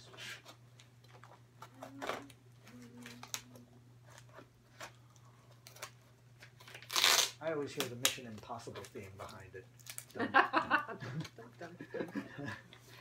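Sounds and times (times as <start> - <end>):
blade cutting packing tape: 6.7 - 7.4.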